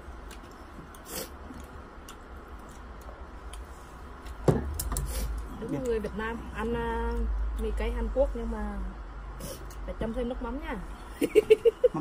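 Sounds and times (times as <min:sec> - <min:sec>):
person chewing noodles: 0:00.0 - 0:05.5
low steady rumble: 0:00.0 - 0:12.0.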